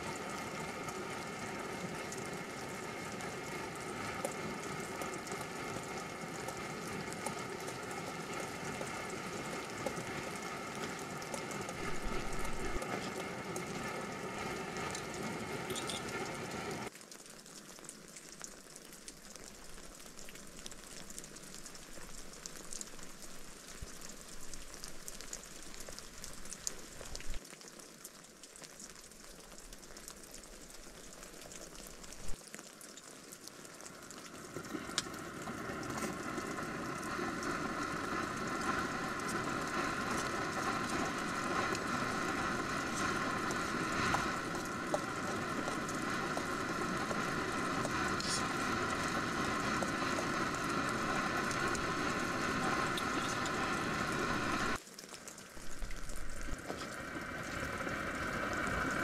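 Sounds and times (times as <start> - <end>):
gas stove burning: 0.0 - 16.9, 34.3 - 54.8
water dripping: 0.0 - 58.9
pot simmering: 0.0 - 59.0
rain pattering on tent: 0.0 - 59.0.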